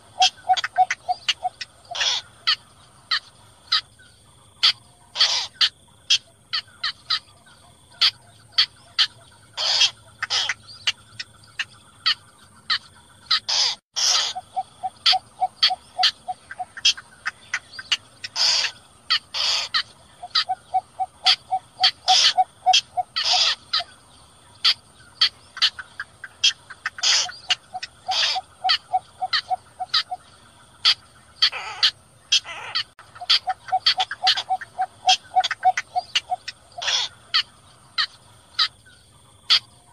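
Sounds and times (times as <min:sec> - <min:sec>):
bittern calls: 0:00.0 - 0:39.9.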